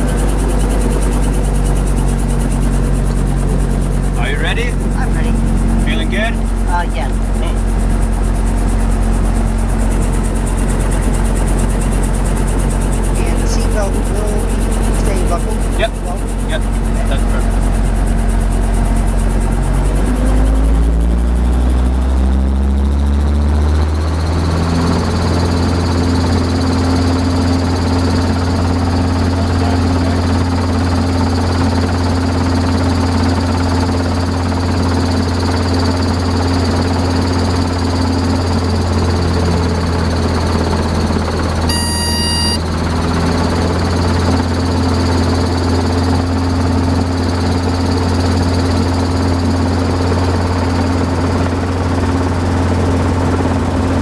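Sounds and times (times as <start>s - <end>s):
helicopter engine and rotor: 0.0s - 54.0s
brief high tone: 41.7s - 42.6s.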